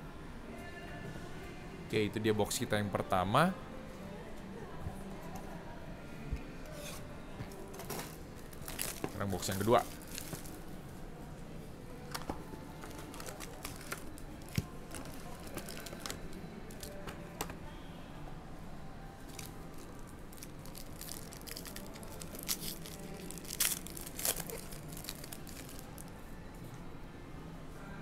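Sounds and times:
foil packs crinkling: 0:07.9 - 0:10.6, 0:12.8 - 0:17.1, 0:19.3 - 0:26.1
wrapper tearing open: 0:08.0 - 0:10.6, 0:12.8 - 0:17.0, 0:19.3 - 0:26.1.

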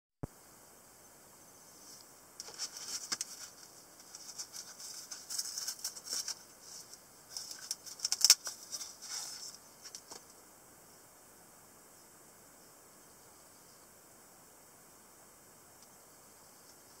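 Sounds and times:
nylon pouch rustling: 0:02.4 - 0:10.1.

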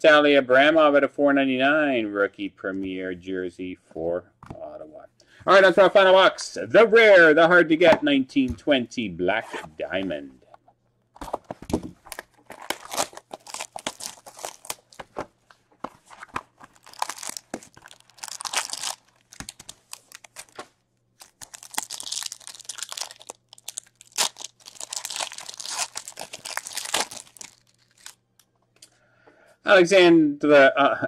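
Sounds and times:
foil wrapper ripping and crinkling: 0:12.0 - 0:15.0, 0:16.6 - 0:20.6, 0:21.2 - 0:28.2.

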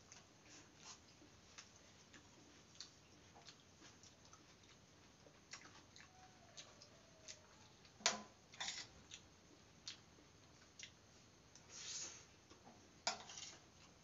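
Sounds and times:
chewing and lip-smacking: 0:00.0 - 0:08.0, 0:09.0 - 0:11.7.

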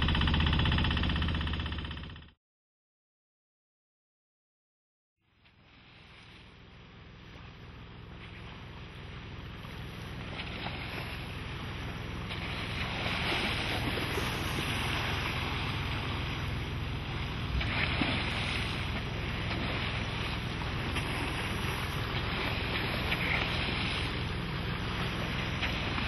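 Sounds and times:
low steady hum: 0:05.3 - 0:26.0
water rushing and splashing: 0:07.2 - 0:26.0.

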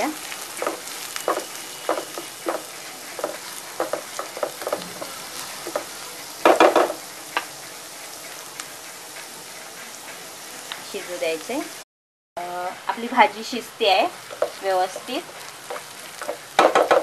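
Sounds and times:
vegetables sizzling in oil: 0:00.0 - 0:11.8, 0:12.4 - 0:17.0
wooden spatula scraping pan: 0:00.5 - 0:07.0.

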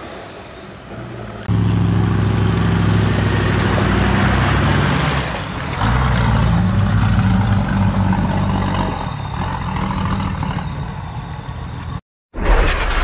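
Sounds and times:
diesel truck engine under load: 0:00.9 - 0:12.0
loud whoosh: 0:12.4 - 0:13.0.

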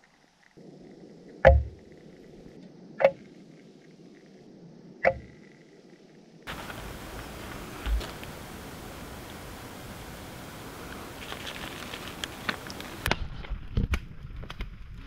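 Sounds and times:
sharp knocks: 0:01.4 - 0:01.8.

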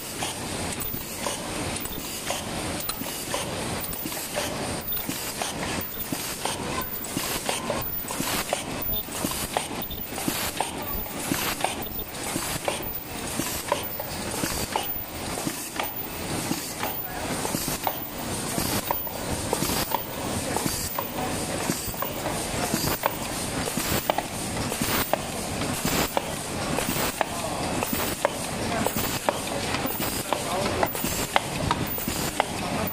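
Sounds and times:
machine clattering with clicks: 0:00.0 - 0:32.9.

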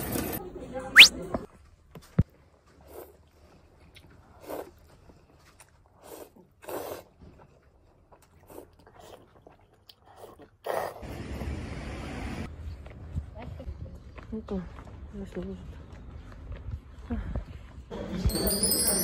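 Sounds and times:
person slurping noodles: 0:06.0 - 0:07.2.

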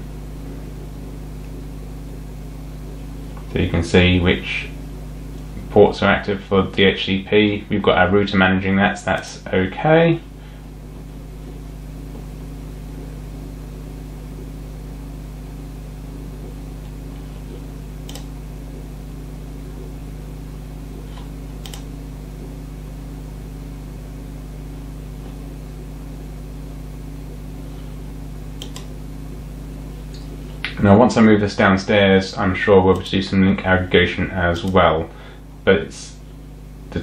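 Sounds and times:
computer fans humming: 0:00.0 - 0:37.0
mouse clicks: 0:28.6 - 0:28.9.

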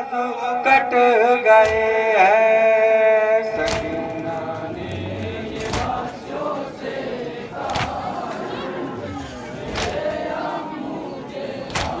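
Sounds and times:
group singing in unison: 0:00.0 - 0:12.0
crowd murmur: 0:03.3 - 0:12.0.

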